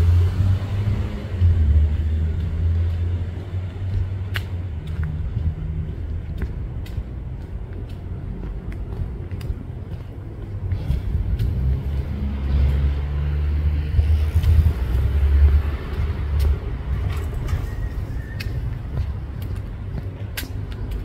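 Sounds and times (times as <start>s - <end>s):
car passing by: 0.0s - 4.2s, 10.7s - 18.6s.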